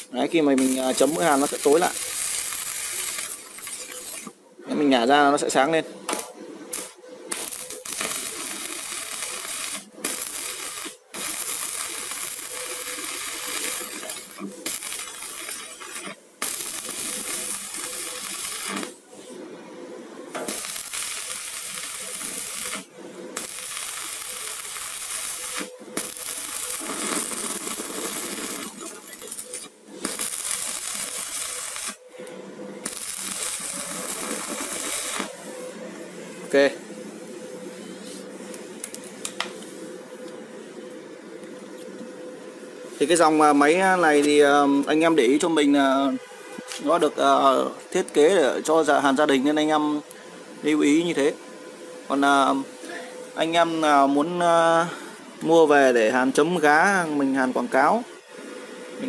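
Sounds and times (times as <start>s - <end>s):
welding arc crackling and hissing: 0.0s - 4.4s, 5.0s - 19.5s, 20.3s - 32.2s, 32.8s - 35.8s, 52.1s - 58.0s.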